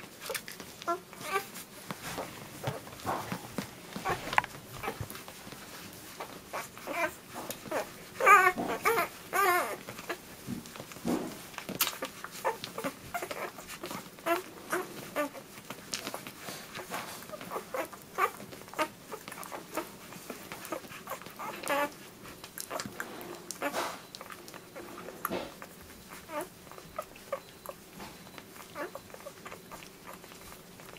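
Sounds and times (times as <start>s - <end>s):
puppies suckling clicks: 0.0s - 30.9s
puppy whining: 0.0s - 30.9s
puppies squeaking and whimpering: 0.2s - 30.9s.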